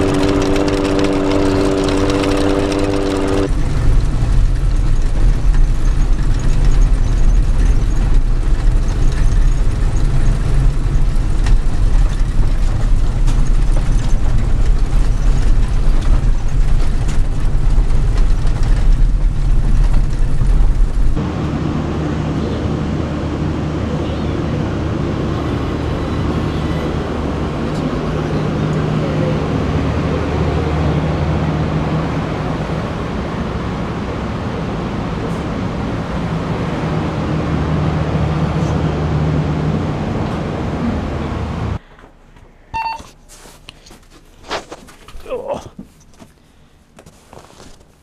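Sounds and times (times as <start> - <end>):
cooling fans whooshing: 20.4 - 41.8.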